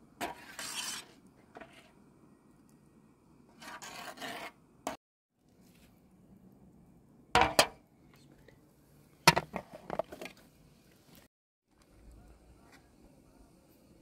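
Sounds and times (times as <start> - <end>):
metal spoon scraping pan: 0.2 - 2.0.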